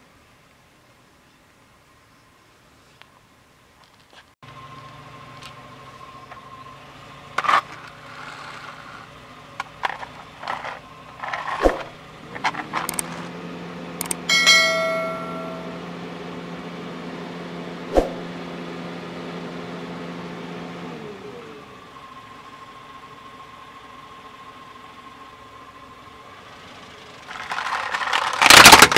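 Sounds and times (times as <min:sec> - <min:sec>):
sharp clicks and knocks: 0:11.4 - 0:13.3
bell ding: 0:14.2 - 0:15.9.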